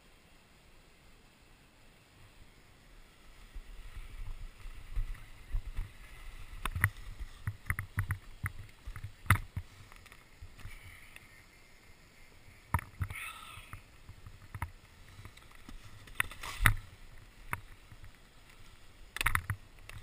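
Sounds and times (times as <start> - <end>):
snowboard scraping on slushy snow: 3.1 - 7.4.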